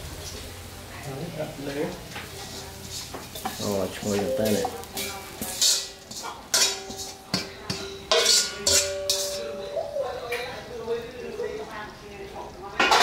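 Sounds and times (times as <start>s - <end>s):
metal spoon scraping a pan: 2.1s - 10.6s
pan ringing: 4.0s - 5.4s, 7.8s - 10.8s.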